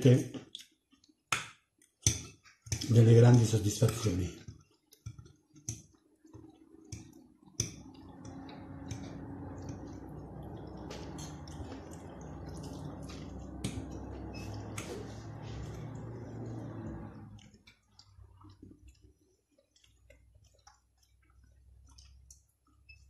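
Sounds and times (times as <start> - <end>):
wet chewing: 3.9 - 23.0
steady low hum: 7.6 - 18.6.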